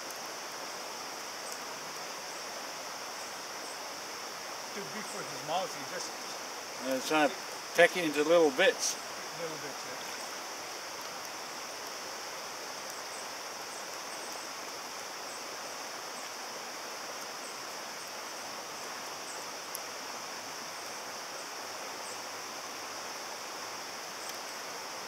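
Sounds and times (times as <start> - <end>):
stream flowing over stones: 0.0 - 25.0
faint click: 24.2 - 24.6.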